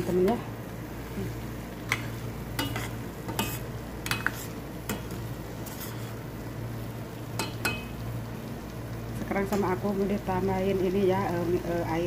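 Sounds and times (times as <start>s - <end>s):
spatula scraping a steel pot: 1.9s - 5.0s, 5.6s - 6.2s.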